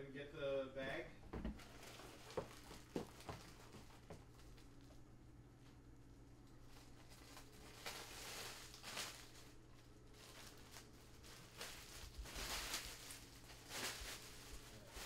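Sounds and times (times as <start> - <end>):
bag rustling: 6.8 - 15.0.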